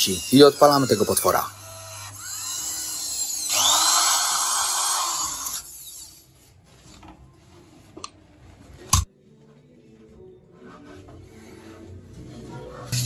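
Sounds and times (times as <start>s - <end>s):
press tool motor running: 0.0s - 6.1s.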